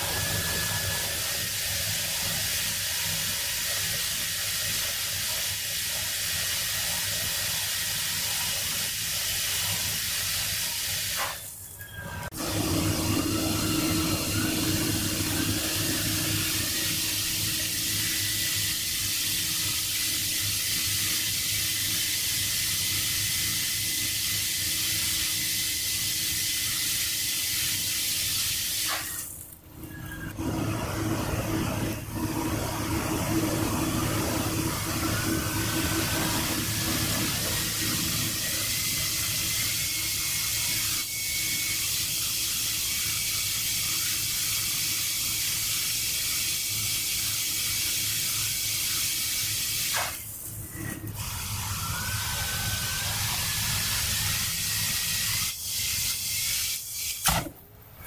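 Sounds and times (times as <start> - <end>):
rushing air hiss: 12.4 - 29.3, 41.7 - 50.3.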